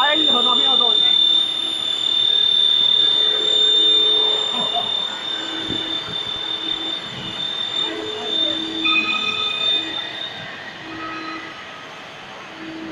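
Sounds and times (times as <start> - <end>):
drilling machine whine: 0.0 - 12.9
squealing tones: 0.0 - 12.9.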